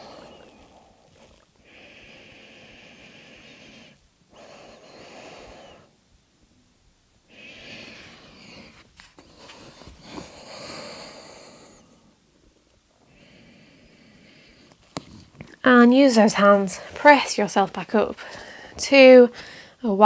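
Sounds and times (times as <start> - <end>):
person breathing deeply: 0.0 - 6.0, 7.3 - 12.2, 13.0 - 14.8, 18.2 - 19.8
soft clicks and rustles on a mat: 14.7 - 15.6.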